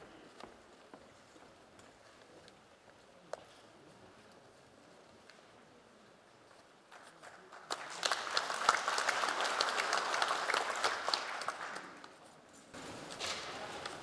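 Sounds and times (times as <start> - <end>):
audience applauding: 7.2 - 12.2.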